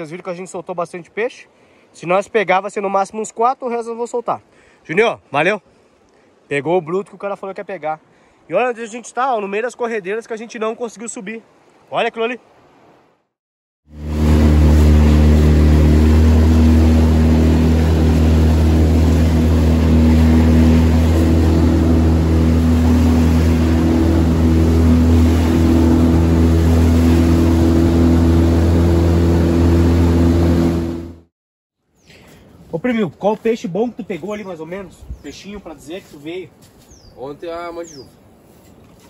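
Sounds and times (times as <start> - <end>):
motorboat engine running: 13.9 - 31.3.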